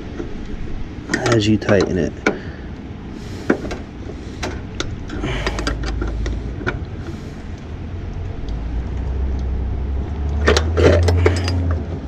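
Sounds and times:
steady low rumble: 0.0s - 12.0s
metal wrenches clicking and clinking: 1.1s - 2.0s, 4.4s - 6.2s, 10.4s - 12.0s.

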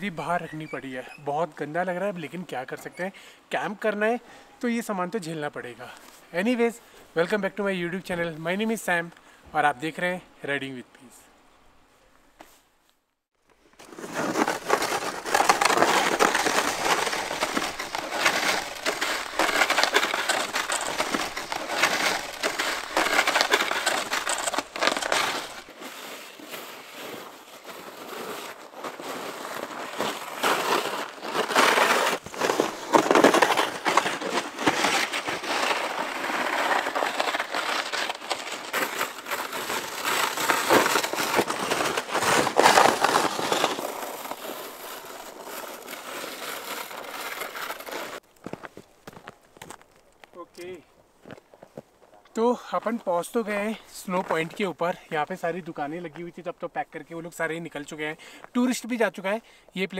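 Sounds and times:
crunching over hard snow: 13.7s - 56.4s.

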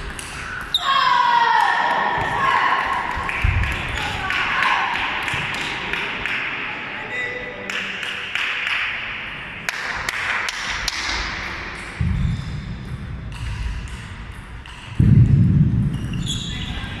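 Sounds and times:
low thudding noise: 15.0s - 16.2s.

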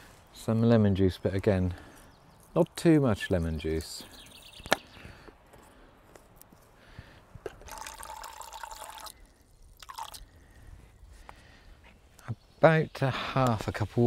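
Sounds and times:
water pouring into a cup: 7.5s - 10.4s.

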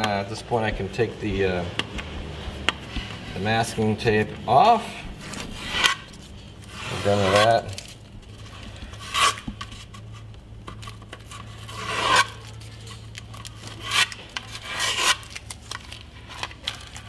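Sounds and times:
low steady hum: 0.0s - 17.0s
tape being peeled off: 5.2s - 17.0s.

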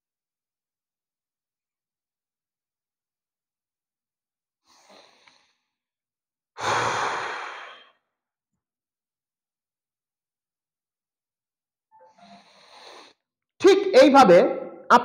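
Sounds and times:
man breathing out: 6.6s - 8.0s.

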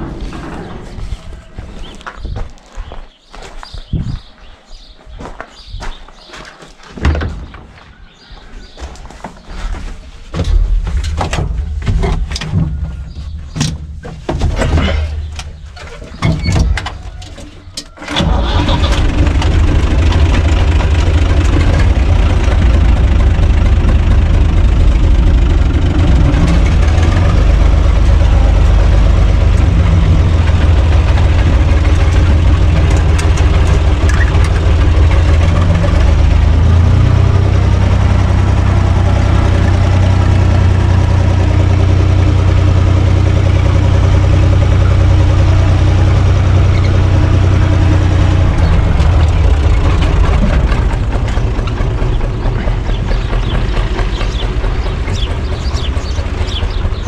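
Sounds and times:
tractor diesel engine from inside cab: 14.4s - 57.0s.

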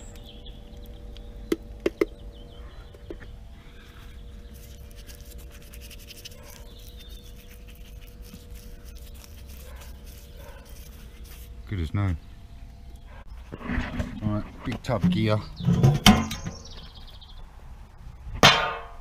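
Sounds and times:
paintbrush scrubbing on steel: 4.5s - 11.7s.

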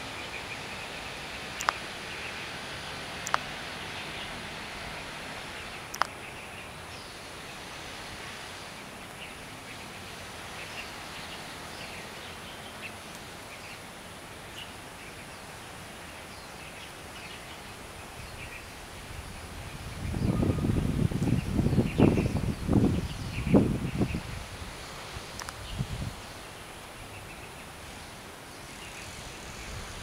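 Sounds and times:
sharp click: 1.6s - 1.8s, 3.2s - 3.5s, 5.9s - 6.2s
low rumble on microphone: 19.1s - 24.7s.

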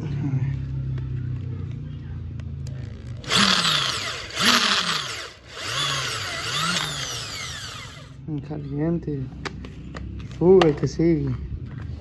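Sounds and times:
power drill boring into metal: 3.2s - 8.2s.

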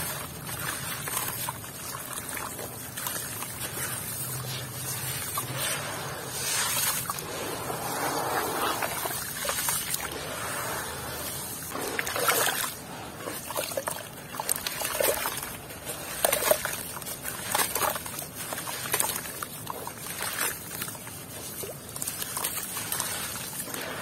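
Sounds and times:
muddy water sloshing: 0.0s - 24.0s
water dribbling into tub: 0.0s - 24.0s.

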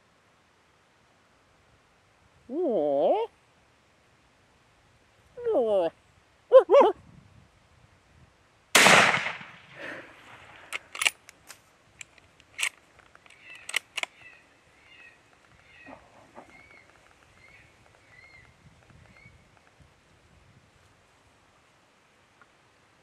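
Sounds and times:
suppressed rifle shot: 8.8s - 11.1s
sharp clicks: 10.5s - 14.4s.

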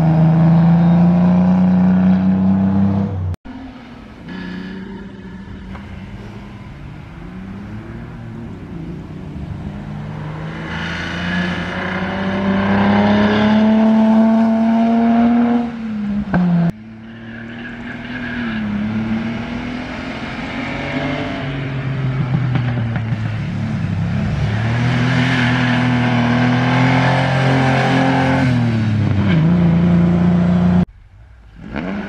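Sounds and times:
racing car engine at full throttle: 0.0s - 30.9s, 31.5s - 32.0s
second racing engine: 0.0s - 30.9s.

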